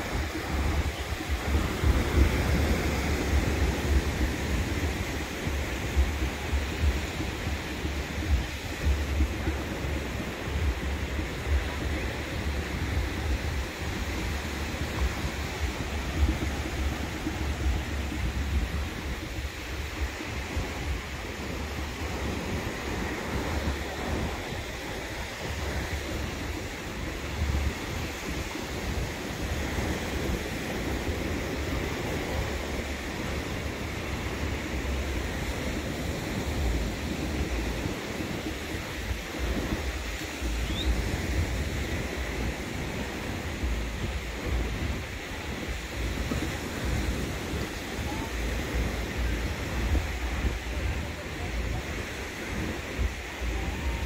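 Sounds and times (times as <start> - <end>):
surf breaking on sandy shore: 0.0 - 54.0
wind buffeting microphone: 0.0 - 54.0.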